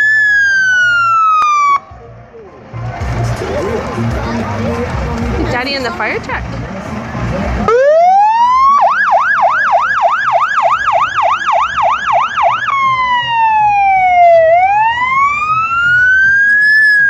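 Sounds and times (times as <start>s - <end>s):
fire engine siren: 0.0s - 2.6s, 7.6s - 17.0s.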